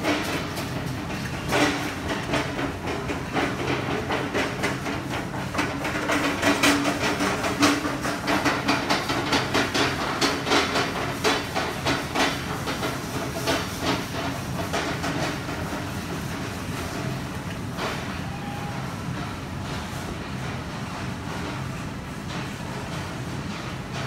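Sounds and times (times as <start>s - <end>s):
clatter and knocks: 0.0s - 18.0s.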